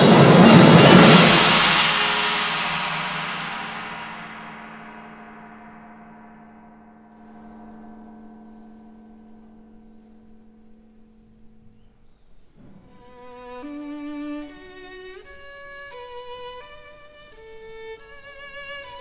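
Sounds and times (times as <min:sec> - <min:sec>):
gong ringing: 0:00.0 - 0:14.0.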